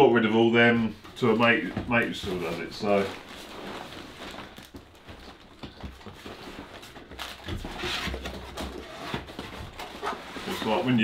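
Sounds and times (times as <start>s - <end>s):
cardboard box rustling and knocking: 3.7s - 10.8s.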